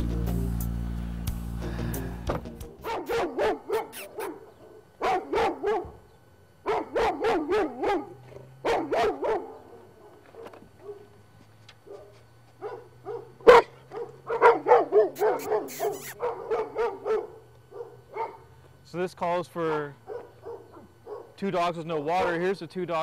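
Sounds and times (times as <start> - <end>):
dogs barking rapidly: 2.8 - 6.0, 6.6 - 11.2, 11.8 - 18.5, 20.0 - 21.4.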